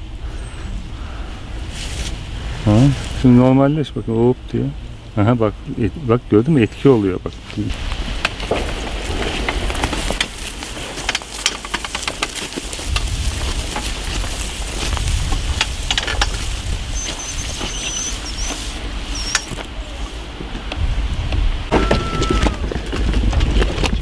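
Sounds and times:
footsteps crunching on straw: 1.7s - 2.2s, 6.9s - 20.3s
dolly rolling on track: 6.9s - 24.0s
high squeak: 17.0s - 20.0s.

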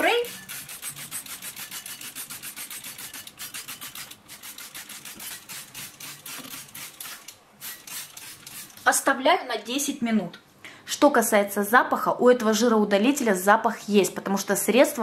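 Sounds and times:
spray bottle squirting: 0.1s - 8.9s.

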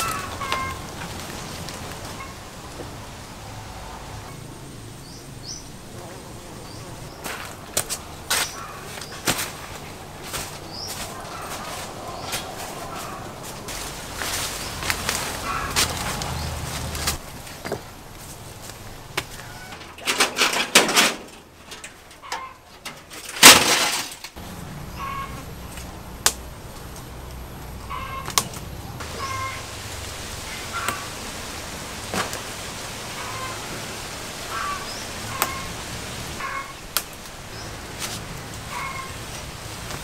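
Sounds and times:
rustling from climbing a tree: 0.0s - 4.2s, 6.0s - 40.0s
bird chirping: 27.7s - 29.7s.

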